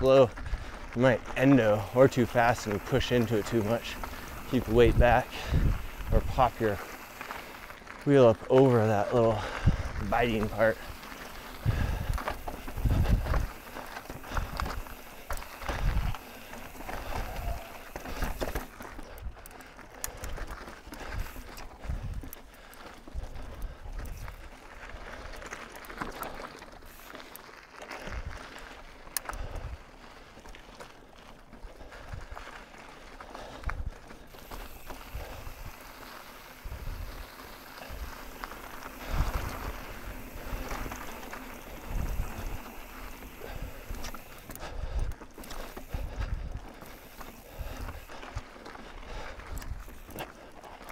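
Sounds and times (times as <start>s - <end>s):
bike rattling ticks: 0.0s - 50.9s
bike tyres crunching on rock: 0.0s - 50.9s
wind on microphone: 4.5s - 6.5s, 11.6s - 13.6s, 15.7s - 16.2s, 41.7s - 42.7s.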